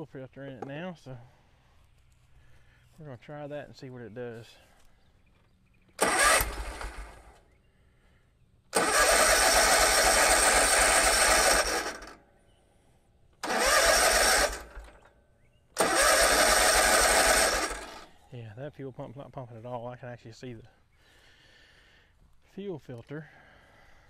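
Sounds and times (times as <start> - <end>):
mower engine cranking: 5.9 - 7.4, 8.7 - 12.2, 13.4 - 15.2, 15.8 - 18.2.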